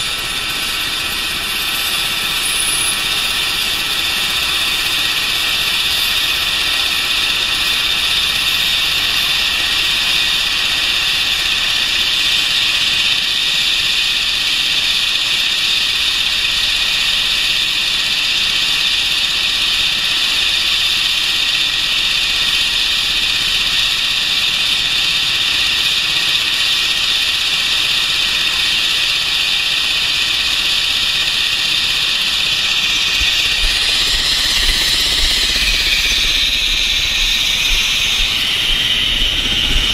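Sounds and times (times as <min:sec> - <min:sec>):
turbine engine whine and hiss: 0:00.0 - 0:39.9
low rumble: 0:32.8 - 0:39.9.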